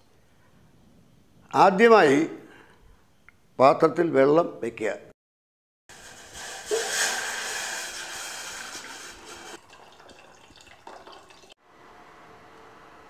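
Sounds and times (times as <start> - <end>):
water pouring into metal pot: 6.0 - 11.6.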